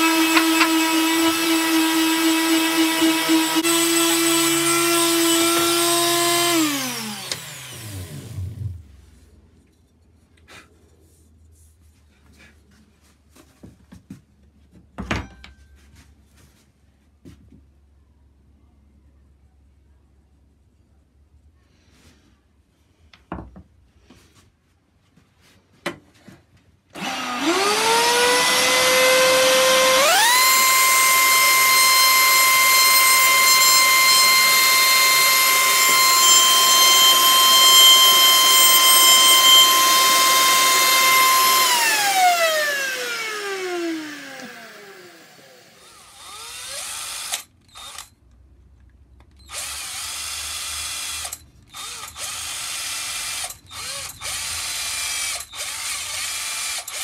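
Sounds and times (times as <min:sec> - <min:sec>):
cordless drill bursts: 0:00.0 - 0:08.4, 0:27.0 - 0:48.2, 0:49.4 - 0:57.0
router high whine: 0:00.0 - 0:08.8, 0:27.0 - 0:48.1.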